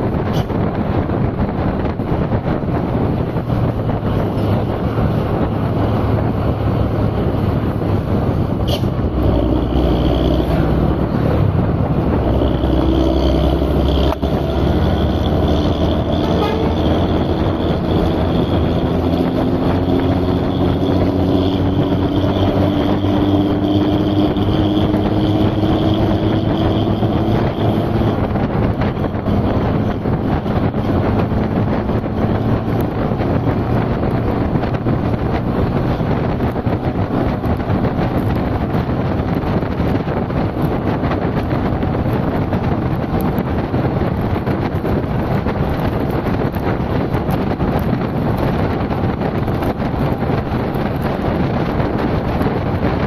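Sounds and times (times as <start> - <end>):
engine running steadily: 0.0 - 53.0
rush of wind or water: 0.0 - 53.0
hum rising in pitch: 1.3 - 39.3.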